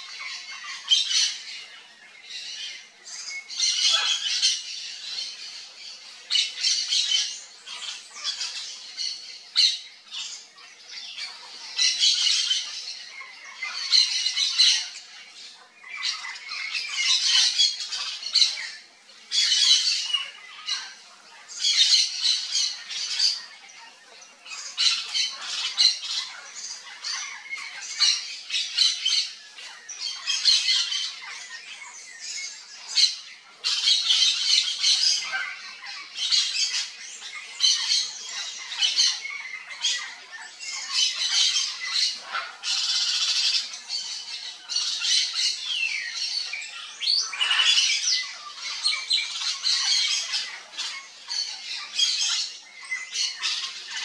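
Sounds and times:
parrots squawking: 0:03.2 - 0:10.4, 0:15.8 - 0:21.0, 0:21.6 - 0:23.5, 0:24.4 - 0:29.4, 0:30.0 - 0:31.8, 0:32.8 - 0:54.0.

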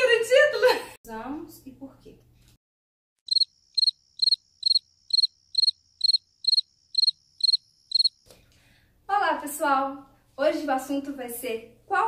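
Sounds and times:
cricket chirping: 0:03.3 - 0:08.2.

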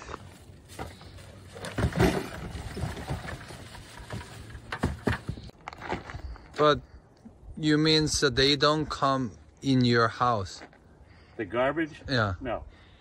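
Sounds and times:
plastic garbage bags rustling: 0:00.0 - 0:05.3.

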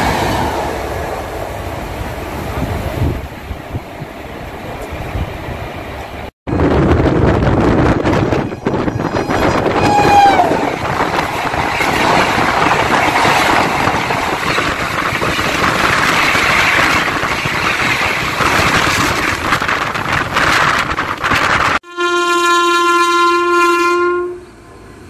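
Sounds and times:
train coaches rushing past: 0:00.0 - 0:21.8
train horn: 0:08.3 - 0:10.8, 0:21.8 - 0:24.8.

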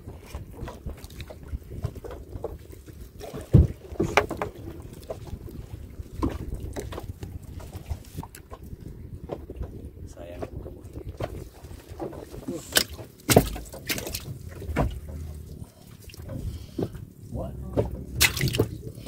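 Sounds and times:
wind on microphone: 0:00.0 - 0:12.6.

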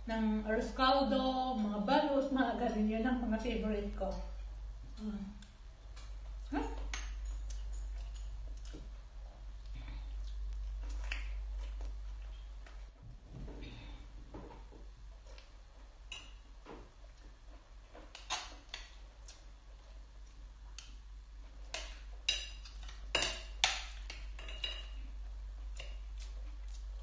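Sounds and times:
cutlery clinking on glass bowl: 0:06.8 - 0:08.3, 0:21.8 - 0:25.0.

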